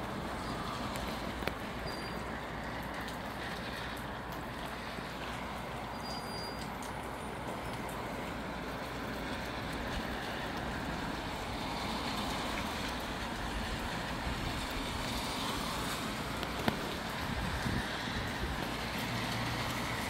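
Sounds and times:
wind through palm fronds: 0.0s - 20.0s
wind rumble on microphone: 9.8s - 20.0s.

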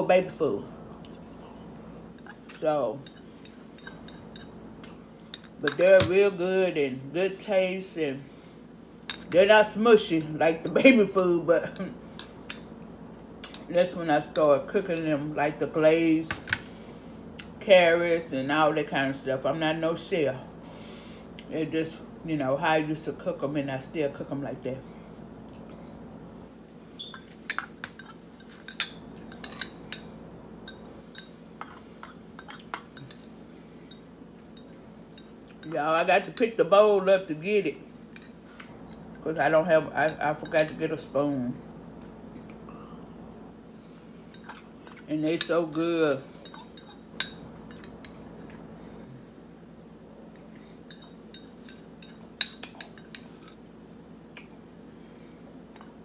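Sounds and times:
metal fork clinking on ceramic bowl: 27.1s - 30.1s, 50.9s - 53.6s.

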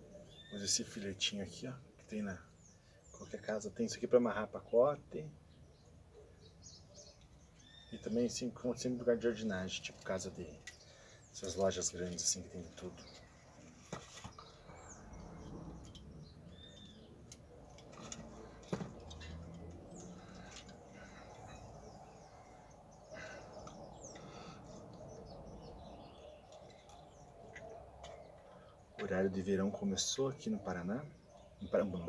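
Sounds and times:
small birds chirping: 0.0s - 32.0s
handling clicks and rustling: 11.4s - 22.3s.

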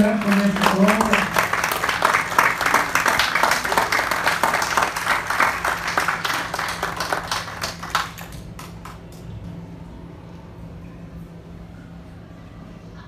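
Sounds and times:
audience clapping: 0.0s - 9.3s.

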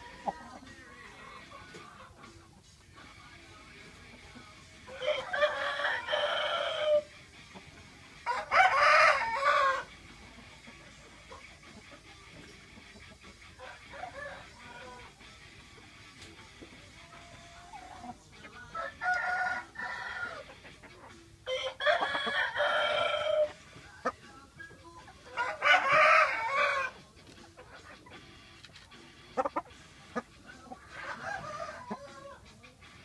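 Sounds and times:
roosters crowing: 0.0s - 1.8s, 4.8s - 7.1s, 8.2s - 10.0s, 13.6s - 15.2s, 17.0s - 20.6s, 21.4s - 24.2s, 25.2s - 27.0s, 29.2s - 32.6s.

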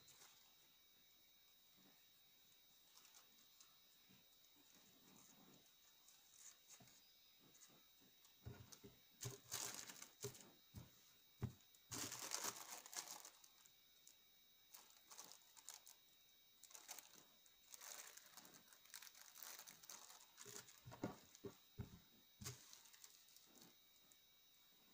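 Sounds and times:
plastic bag crinkling: 8.5s - 10.5s, 11.4s - 13.7s, 14.7s - 16.0s, 16.6s - 21.5s, 22.4s - 23.7s.

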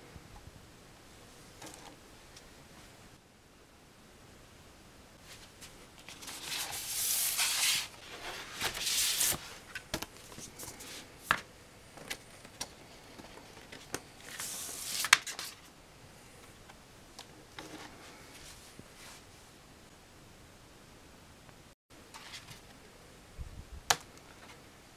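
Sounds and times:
paper and cardboard rustling: 5.2s - 11.4s, 12.0s - 15.7s.

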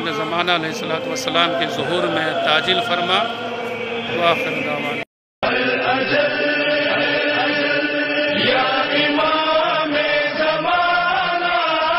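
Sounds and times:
person chanting long sliding notes: 0.0s - 5.0s.

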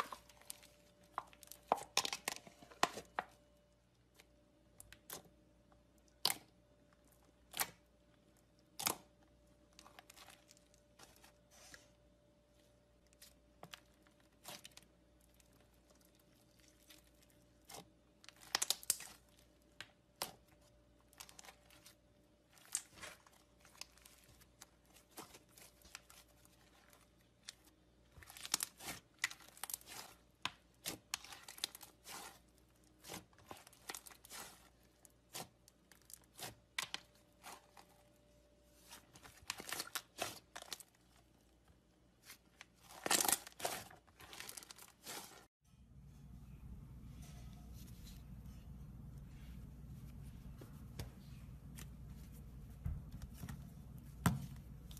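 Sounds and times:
slime crackling and popping: 13.7s - 20.4s.

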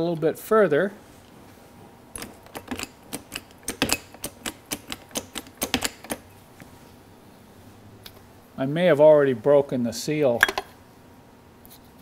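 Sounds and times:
hand pump clicking: 2.2s - 6.3s.

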